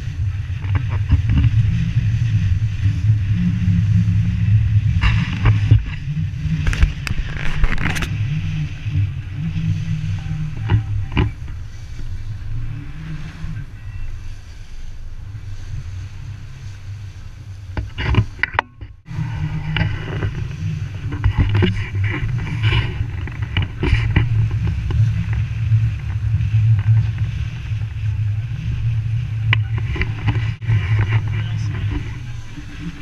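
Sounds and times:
bow wave splashing along hull: 0.0 - 33.0
wind buffeting microphone: 0.0 - 33.0.

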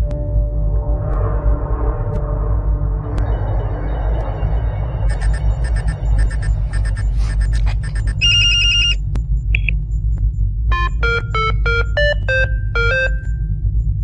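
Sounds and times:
low steady hum: 0.0 - 14.0
buzzing alert tone: 5.1 - 9.0
short electronic chirp: 5.1 - 9.0
electronic beep tune: 5.1 - 9.7, 10.7 - 13.4.

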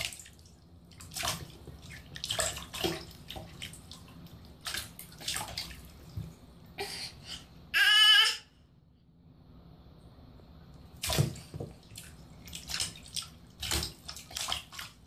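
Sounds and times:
bathwater splashing: 0.0 - 6.6, 10.8 - 15.0.

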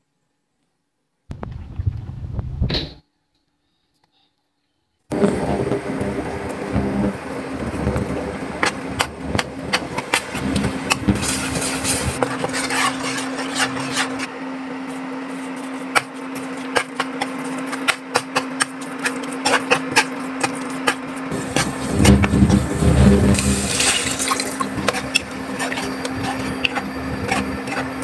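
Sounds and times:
low hum: 5.1 - 14.3, 21.3 - 28.0
ladle scraping a wok: 7.6 - 14.3, 14.9 - 28.0.

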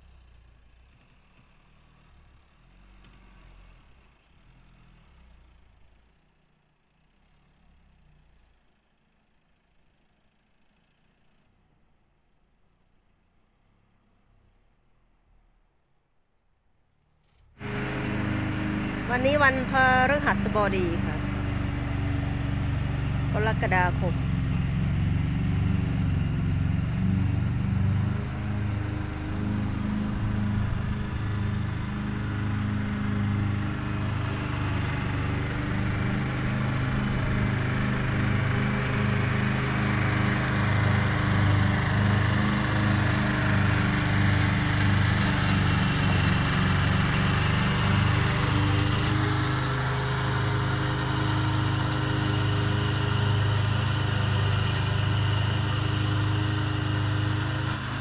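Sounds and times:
lawn mower engine running: 17.6 - 58.0.

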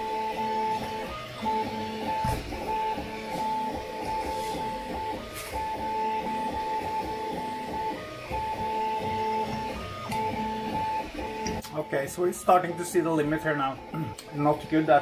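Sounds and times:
three d printer motors whining: 0.0 - 15.0.

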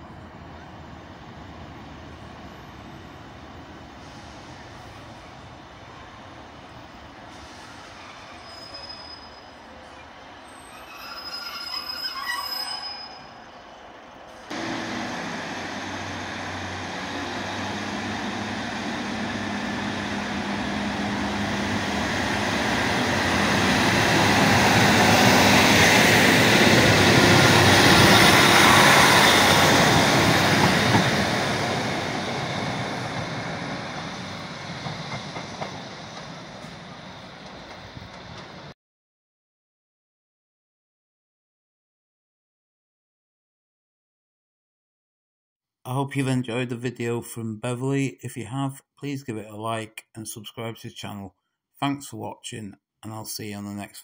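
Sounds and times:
train wheels on rails: 13.8 - 38.7
diesel engine droning: 14.5 - 25.0.

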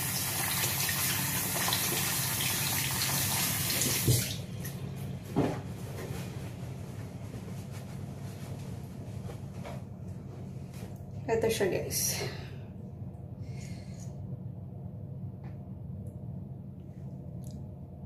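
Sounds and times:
tap running into a sink: 0.2 - 4.4.

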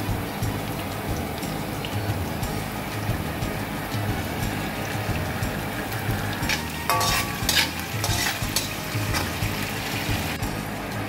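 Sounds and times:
sauce sizzling in hot oil: 0.0 - 11.0
spatula scraping a wok: 6.3 - 10.4.

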